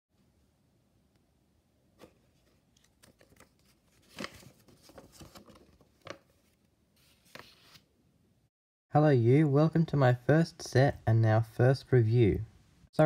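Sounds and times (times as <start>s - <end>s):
paper rustling and crinkling: 2.0s - 7.9s.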